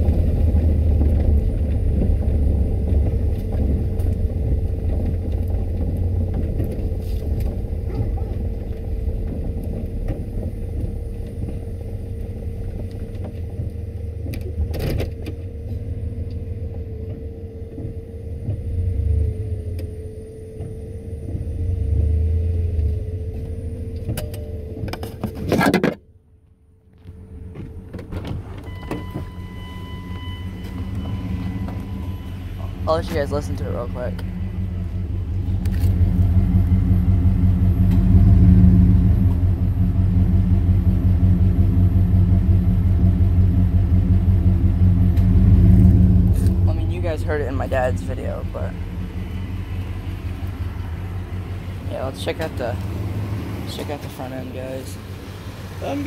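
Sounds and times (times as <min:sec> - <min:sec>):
engine and road rumble: 0:00.0 - 0:56.0
steady high tone: 0:28.7 - 0:35.4.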